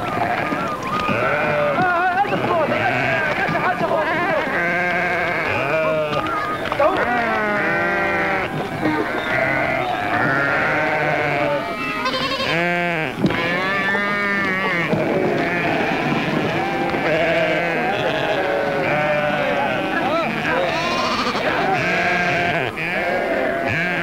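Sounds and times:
sheep bleating: 0.1 - 24.0.

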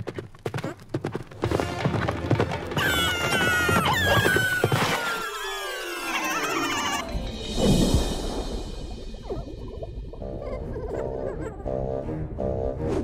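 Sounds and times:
clip-clop footstep effects: 0.0 - 5.2
cartoon music: 2.8 - 7.2.

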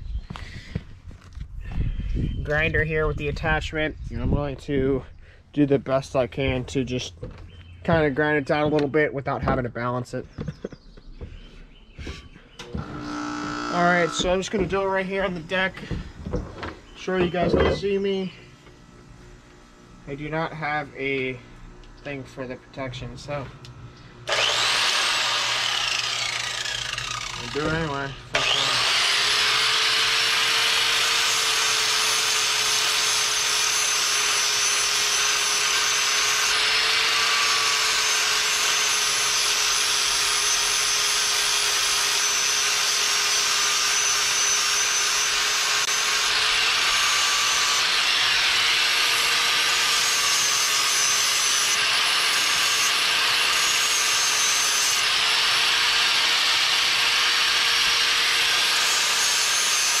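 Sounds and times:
angle grinder grinding steel: 12.6 - 16.0, 24.3 - 60.0.

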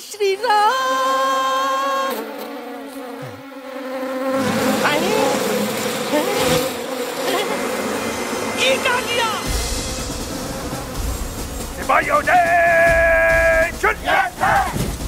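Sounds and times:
bees buzzing: 0.0 - 15.0
squeaky high glides: 0.3 - 11.9.

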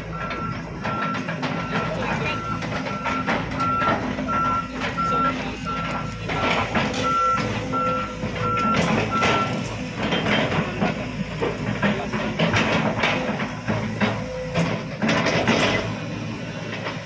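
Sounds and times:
backup alarm beeping: 0.0 - 9.7
clanks and rattles: 0.0 - 17.0
excavator diesel engine running: 0.0 - 17.0.

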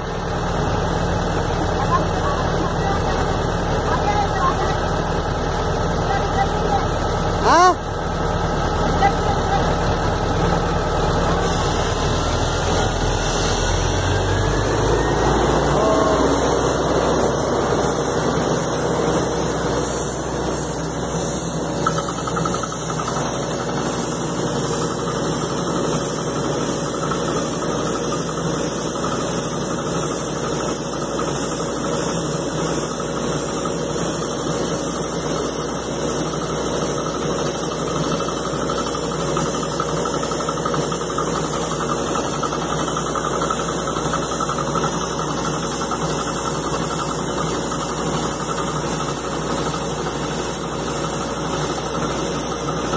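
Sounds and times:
drilling rig running: 0.0 - 52.9
faint rising whine: 10.2 - 19.6.

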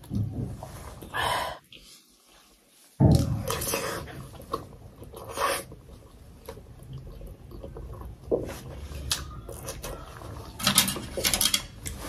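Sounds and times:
chewing and mouth sounds: 3.1 - 10.6
slurping from a spoon: 3.5 - 10.3.

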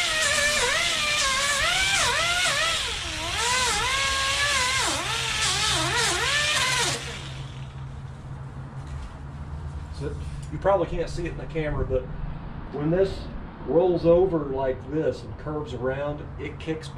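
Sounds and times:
air grinder whining on foam: 0.0 - 7.8.

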